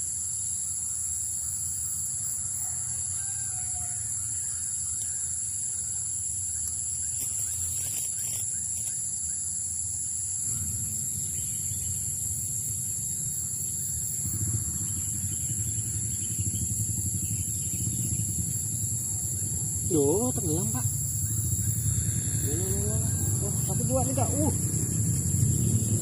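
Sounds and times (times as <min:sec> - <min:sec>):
high insect drone: 0:00.0 - 0:26.0
low rumble: 0:10.4 - 0:26.0.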